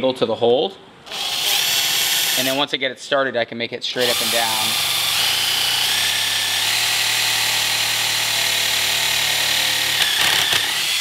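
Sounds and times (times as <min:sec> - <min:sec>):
cordless drill whining: 0:01.1 - 0:02.6, 0:04.0 - 0:11.0.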